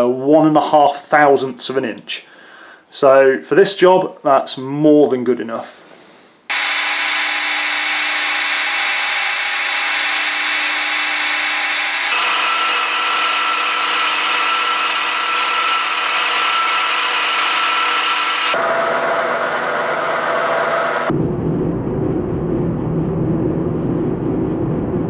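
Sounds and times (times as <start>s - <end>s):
metal lathe cutting whine: 6.5s - 21.1s.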